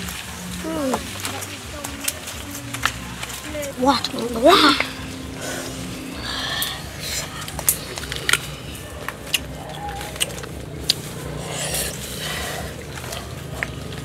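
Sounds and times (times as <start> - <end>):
mango crunching and snapping: 6.9 - 14.0.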